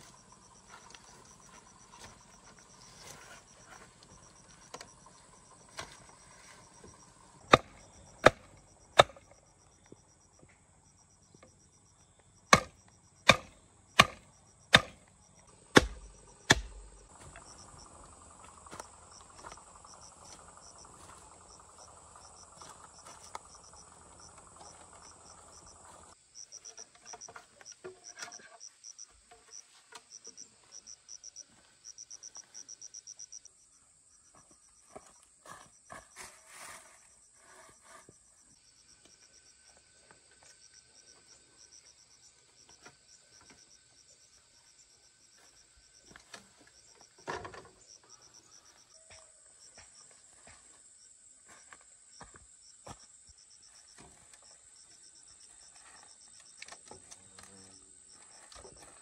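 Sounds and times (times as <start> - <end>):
insects chirping: 0.0 - 59.0
sharp knocks on wood: 15.7 - 16.9.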